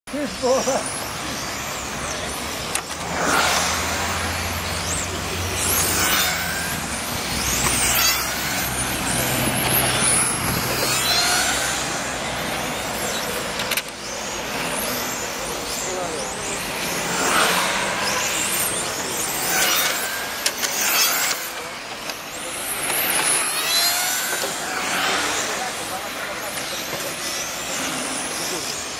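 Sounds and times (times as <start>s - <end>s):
rc car motors whining: 0.1s - 28.9s.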